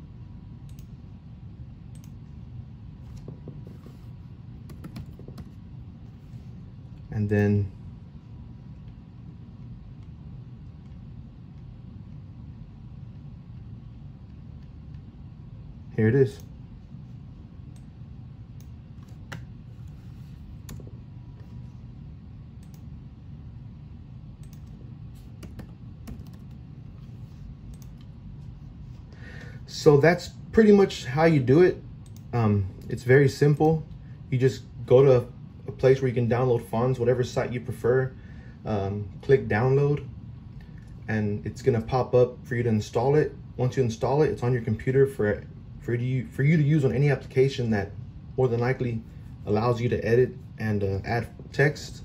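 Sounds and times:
low steady hum: 0:00.0 - 0:52.0
laptop keyboard typing: 0:04.6 - 0:05.6, 0:24.4 - 0:26.6.

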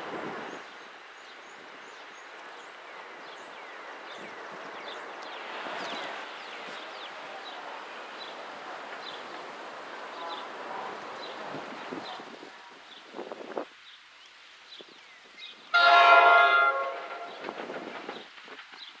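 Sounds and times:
train rushing: 0:03.8 - 0:12.4, 0:15.7 - 0:19.0
birds chirping and twittering: 0:16.7 - 0:19.0.

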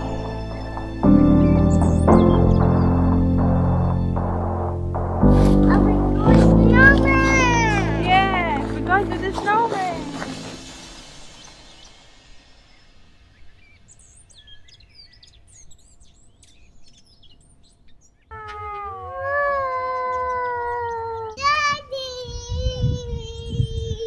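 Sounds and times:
low thuds: 0:00.0 - 0:13.5
bird chirps: 0:00.0 - 0:22.1.

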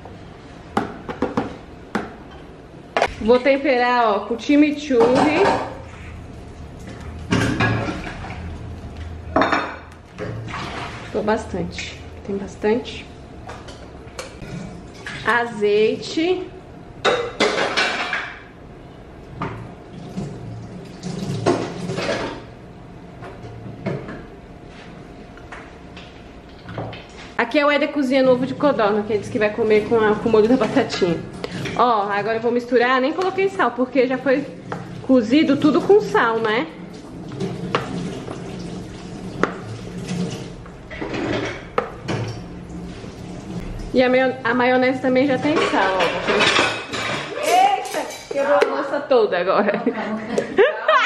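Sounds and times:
steady low hum: 0:00.0 - 0:47.0
dishes and utensils rattling: 0:40.0 - 0:42.3, 0:45.3 - 0:48.6.

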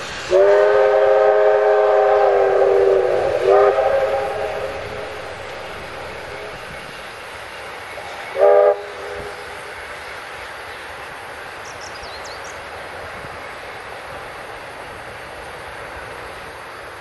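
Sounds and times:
steam locomotive whistle: 0:00.0 - 0:06.9, 0:08.3 - 0:09.7
passing steam train: 0:00.0 - 0:17.0.

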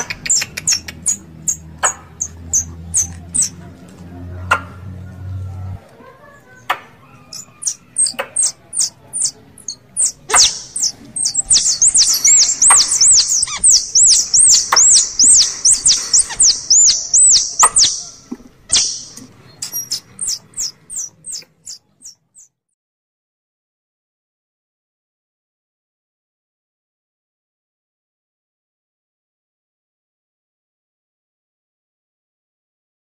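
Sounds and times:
sharp clicks: 0:00.0 - 0:02.0, 0:10.0 - 0:21.4
squeaky squirrel call chirps: 0:00.0 - 0:03.5, 0:07.0 - 0:22.5.

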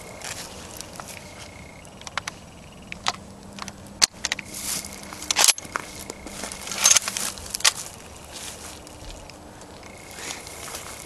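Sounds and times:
footsteps crunching on frosty grass: 0:00.0 - 0:02.6, 0:04.3 - 0:11.0
handling clicks and knocks: 0:00.0 - 0:08.0.

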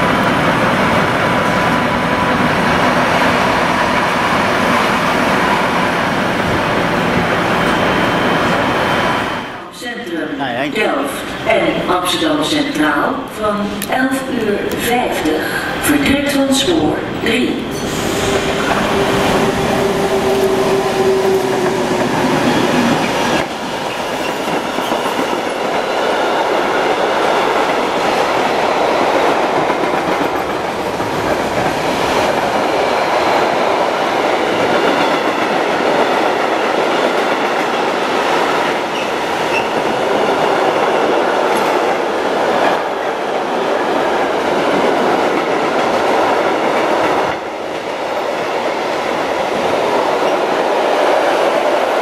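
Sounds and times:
train wheels clattering over rails: 0:17.1 - 0:52.0
locomotive held tone: 0:17.4 - 0:22.9.

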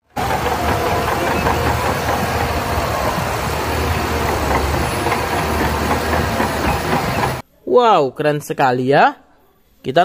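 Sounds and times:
steel tracks clanking: 0:00.0 - 0:07.4.

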